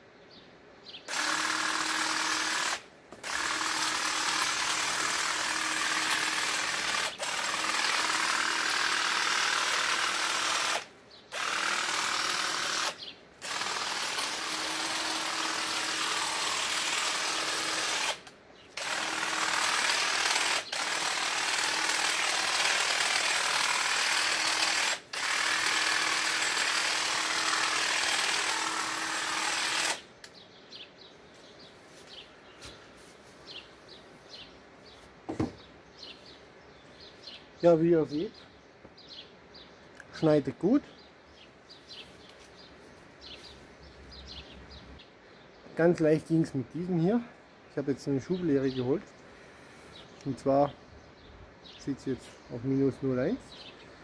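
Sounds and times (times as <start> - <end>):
hedge trimmer cutting hedge: 1.1 - 30.0.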